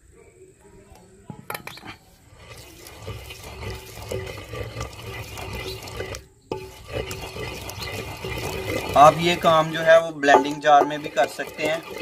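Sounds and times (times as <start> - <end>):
pestle grinding wet paste: 2.3 - 12.0.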